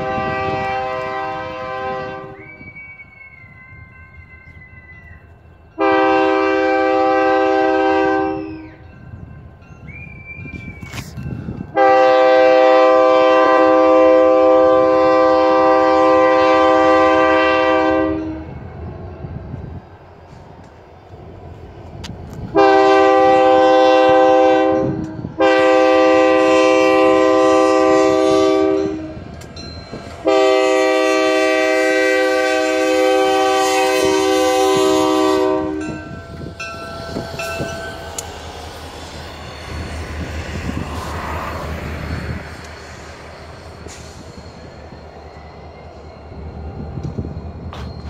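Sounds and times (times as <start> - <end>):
locomotive horn blasts: 0.0 - 2.7, 5.7 - 8.8, 11.7 - 18.6, 22.5 - 29.4, 30.0 - 42.6
train wheels on rails: 0.0 - 48.0
locomotive engines running: 28.8 - 48.0.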